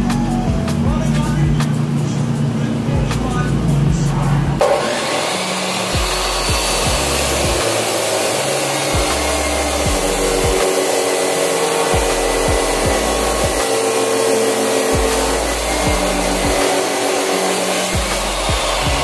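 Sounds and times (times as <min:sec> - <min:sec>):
chop saw cutting steel bar: 0:04.6 - 0:19.0.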